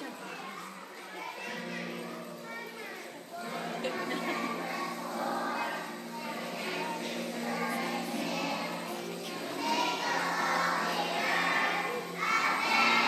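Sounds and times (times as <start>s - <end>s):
acoustic guitar: 0.0s - 13.0s
children singing: 3.3s - 13.0s.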